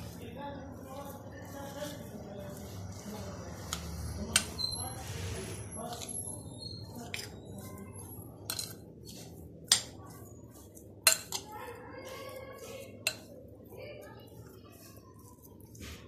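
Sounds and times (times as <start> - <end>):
spoon stirring thick batter: 0.0 - 16.0
spoon clinking against glass bowl: 11.1 - 11.5.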